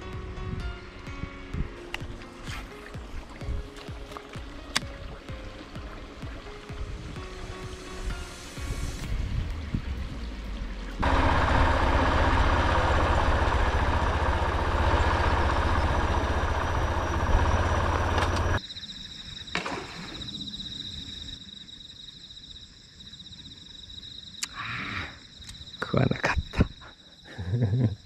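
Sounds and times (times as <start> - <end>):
high-pitched pulsing trill: 11.0 - 18.6
motorcycle engine running: 11.0 - 18.6.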